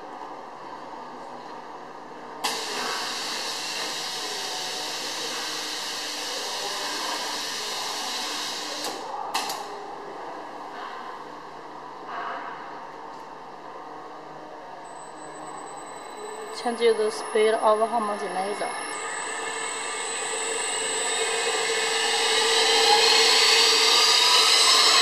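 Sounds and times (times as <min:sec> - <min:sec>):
short puff of air: 0:02.5 - 0:03.7.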